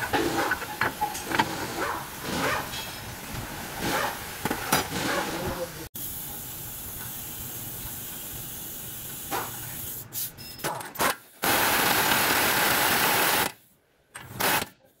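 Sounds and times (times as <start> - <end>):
steady air hiss: 5.9 - 10.4.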